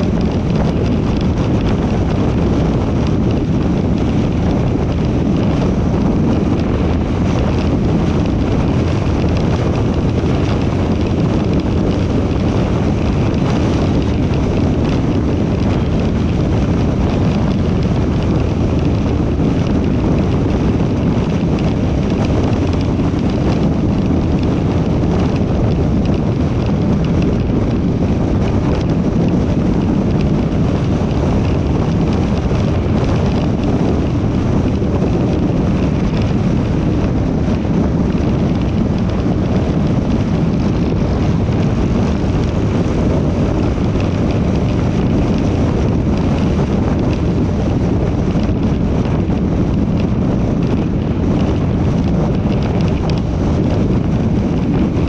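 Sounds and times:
car tyre and wind noise: 0:00.0 - 0:55.0.

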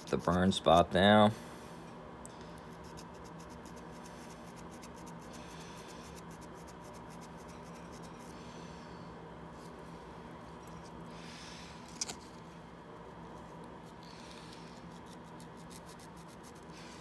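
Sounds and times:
fine sandpaper scratching: 0:00.0 - 0:00.8, 0:02.7 - 0:08.4, 0:14.7 - 0:17.0
steady low hum: 0:00.0 - 0:17.0.

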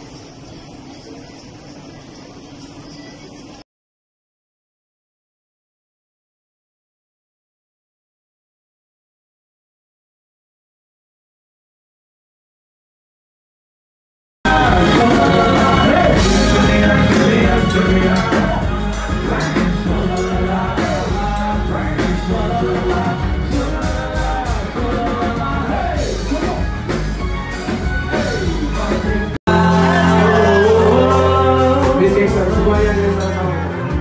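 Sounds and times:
man singing into a microphone: 0:14.5 - 0:26.7, 0:28.1 - 0:34.0
electric guitar: 0:14.5 - 0:34.0
live band playing: 0:14.5 - 0:34.0.

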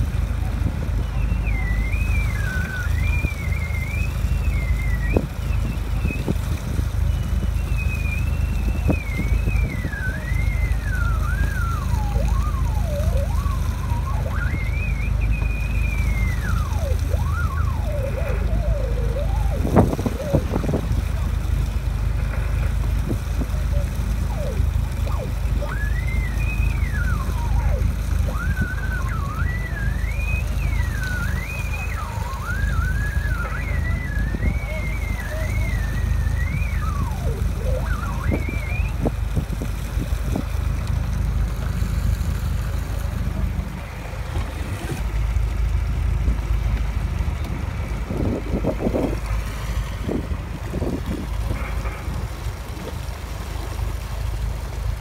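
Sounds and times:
wind noise on microphone: 0:00.0 - 0:40.8, 0:46.1 - 0:54.1
boat engine rumble: 0:00.0 - 0:55.0
sea: 0:00.0 - 0:55.0
water wash: 0:00.0 - 0:55.0
person whistling a tune: 0:01.0 - 0:06.4, 0:07.0 - 0:20.4, 0:25.2 - 0:38.9.

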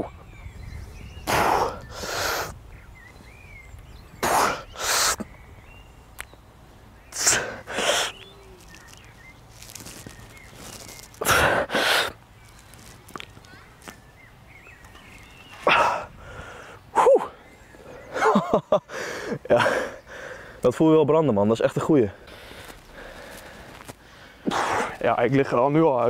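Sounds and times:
birds chirping faintly: 0:00.0 - 0:26.0
man breathing hard in puffs: 0:01.2 - 0:02.6, 0:04.2 - 0:05.3, 0:07.1 - 0:08.2, 0:11.2 - 0:12.2, 0:15.7 - 0:16.8, 0:18.9 - 0:20.6, 0:22.2 - 0:25.0.

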